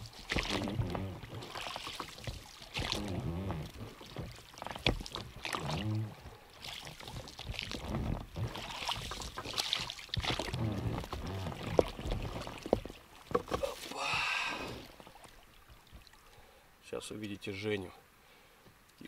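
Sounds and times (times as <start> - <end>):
oar splashing water: 0.0 - 16.7
low creak: 0.4 - 2.2, 2.8 - 8.7, 10.3 - 13.0.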